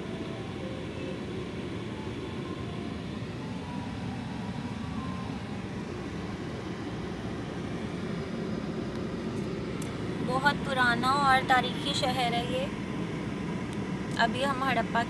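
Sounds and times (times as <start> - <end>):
faint street noise: 0.0 - 15.0
car engine rumble from inside cabin: 5.7 - 15.0.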